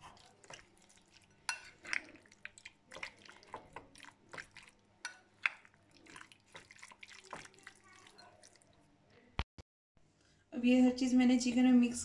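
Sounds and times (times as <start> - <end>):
spoon stirring in glass bowl: 0.0 - 8.9.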